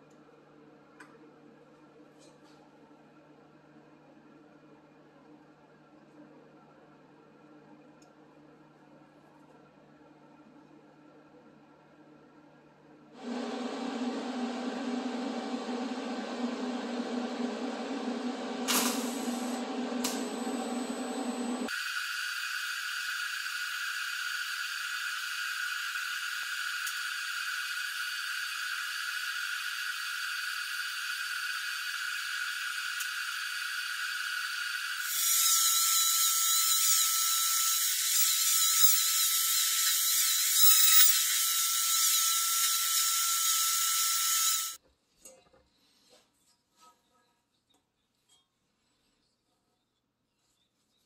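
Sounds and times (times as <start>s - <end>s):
welding arc buzzing hiss: 13.2s - 44.8s.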